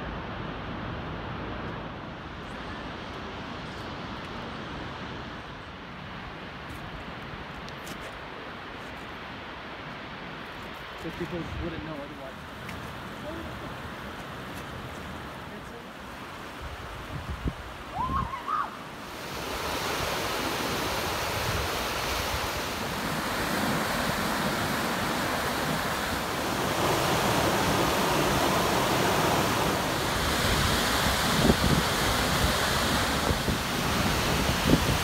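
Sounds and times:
whitewater rushing over rocks: 17.8 - 35.0.

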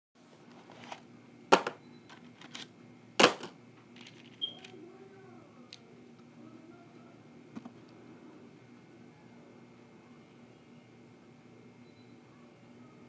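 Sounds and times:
faint steady hum: 0.2 - 13.0.

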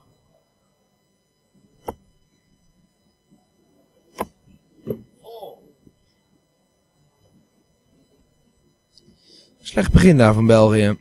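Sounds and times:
darts thudding into dartboard: 4.1 - 5.1.

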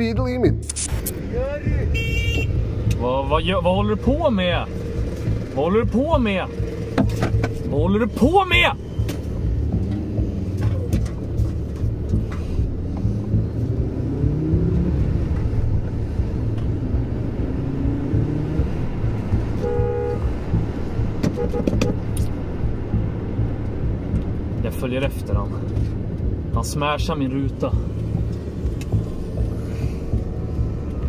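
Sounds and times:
car engine accelerating: 0.0 - 31.0
road rumble: 0.0 - 31.0
car horn toot: 1.8 - 2.6, 19.5 - 20.4, 21.2 - 22.1.

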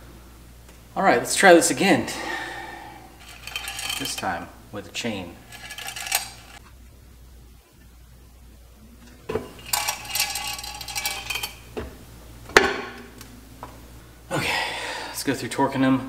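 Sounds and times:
metal engine parts rattling: 3.2 - 4.4, 5.4 - 6.6, 9.3 - 11.7.

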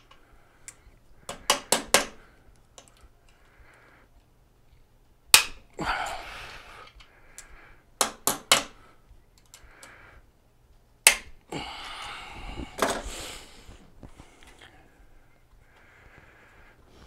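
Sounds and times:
sharp metal clicks of pliers: 5.3 - 5.6, 11.0 - 11.4.

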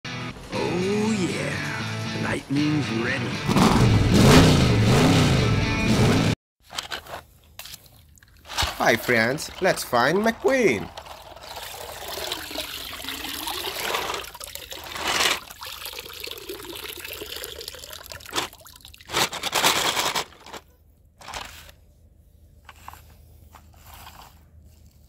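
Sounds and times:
water splashing: 7.6 - 19.4
water pouring and trickling: 7.6 - 19.5.

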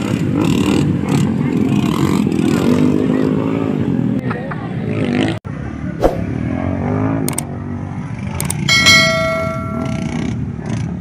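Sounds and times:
motorcycle engines racing: 0.0 - 11.0
ringing bell chime: 8.7 - 10.3.

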